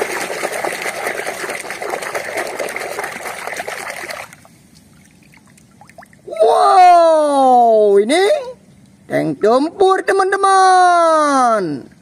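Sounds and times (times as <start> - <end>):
water splashing in a plastic basin: 0.0 - 6.3.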